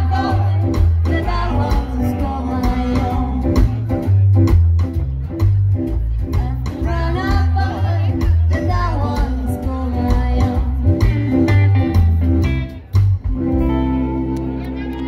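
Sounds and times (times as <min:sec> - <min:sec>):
woman singing: 0:00.0 - 0:03.8, 0:06.3 - 0:12.0
drums: 0:00.0 - 0:15.0
electric guitars: 0:00.0 - 0:15.0
upright double bass: 0:00.0 - 0:15.0.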